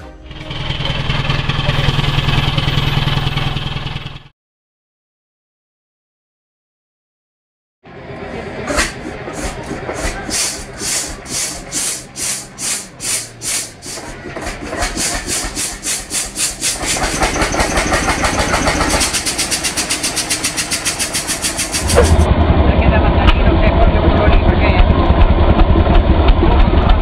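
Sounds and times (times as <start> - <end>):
tractor engine starting: 0.0 - 4.3, 8.6 - 27.0.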